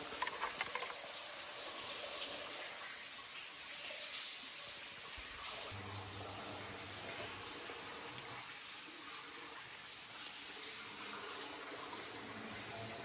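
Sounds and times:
small water splashes: 0.0s - 5.8s
water trickling: 0.0s - 13.0s.

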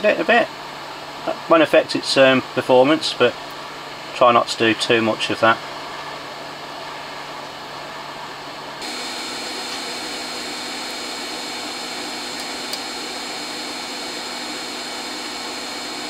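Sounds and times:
hot air blower hissing: 8.8s - 16.0s.

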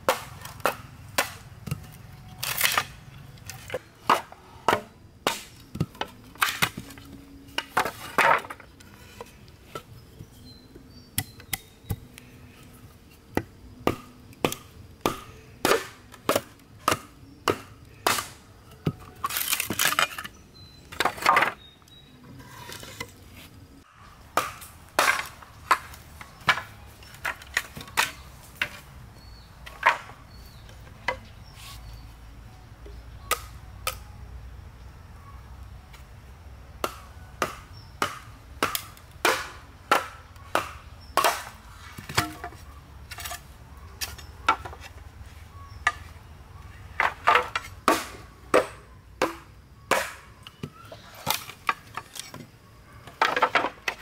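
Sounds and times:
machete chopping bamboo: 0.0s - 7.0s, 13.3s - 18.4s, 19.3s - 20.3s, 24.3s - 28.8s, 33.2s - 34.0s, 36.8s - 43.4s, 47.0s - 52.3s.

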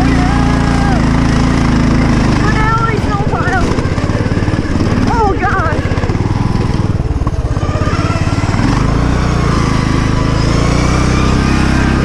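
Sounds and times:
riding lawn mower engine running: 0.0s - 12.0s.

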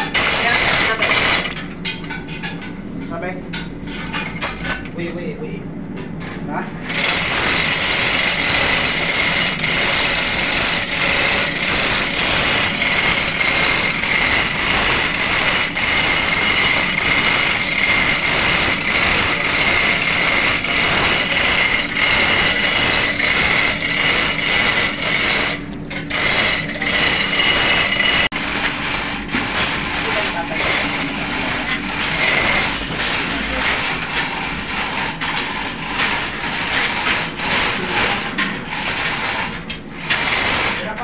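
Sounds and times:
machinery high whine: 6.8s - 41.0s.

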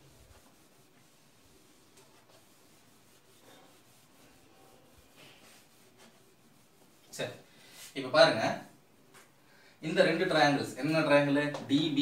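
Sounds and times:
duster wiping a whiteboard: 0.0s - 8.4s.

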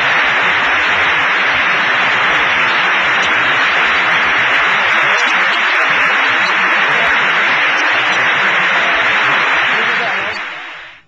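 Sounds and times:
large audience applauding: 0.0s - 11.0s.

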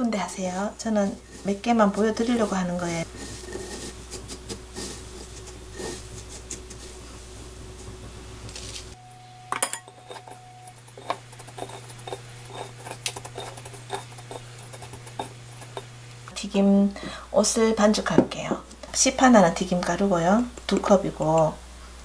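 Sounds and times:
breadcrumbs rustling: 0.1s - 9.0s, 10.7s - 16.0s.

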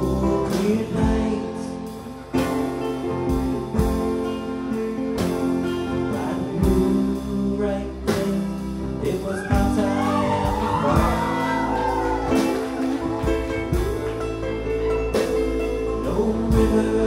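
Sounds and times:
bluegrass band playing: 0.0s - 17.0s
fiddle melody: 9.2s - 17.0s.

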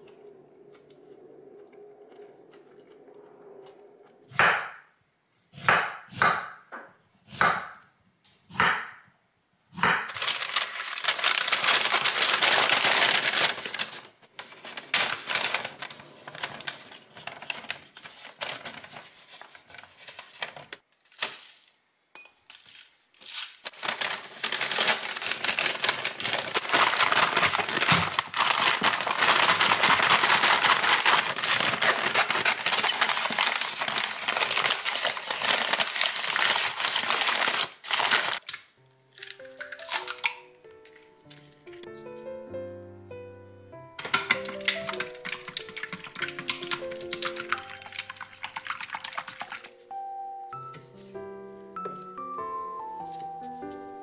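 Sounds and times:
paper bag being shaken: 10.1s - 21.7s, 22.6s - 38.4s, 44.0s - 49.7s
paper bag crinkling and rustling: 10.1s - 21.8s, 22.5s - 38.5s, 44.0s - 49.8s.

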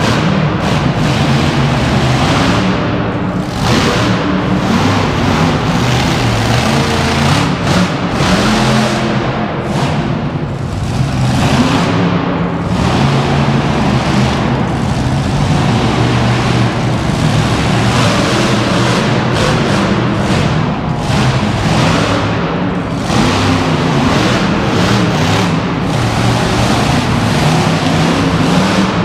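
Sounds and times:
monster truck engines: 0.0s - 29.0s.

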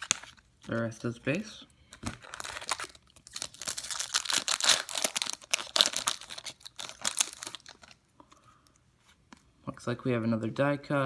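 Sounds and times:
foil wrapper tearing and crinkling: 2.2s - 8.0s.

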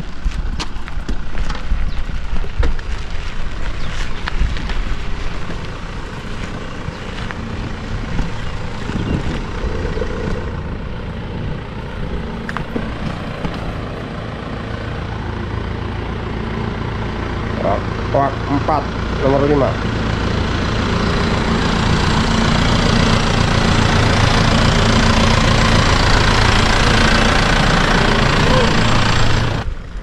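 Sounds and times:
wind rumbling on microphone: 0.0s - 14.3s
bicycle tyres on gravel: 0.0s - 14.6s.

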